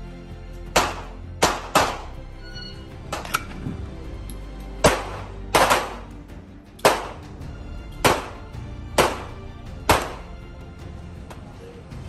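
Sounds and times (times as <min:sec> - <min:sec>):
handgun shots: 0:00.8 - 0:02.1, 0:04.8 - 0:06.2, 0:06.8 - 0:07.3, 0:08.0 - 0:08.4, 0:09.0 - 0:10.3.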